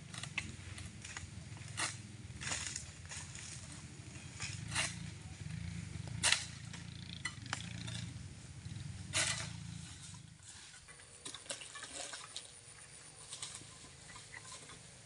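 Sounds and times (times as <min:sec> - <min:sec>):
sickle rasping cutting frond: 0:04.3 - 0:05.1, 0:06.2 - 0:06.9, 0:09.1 - 0:11.8.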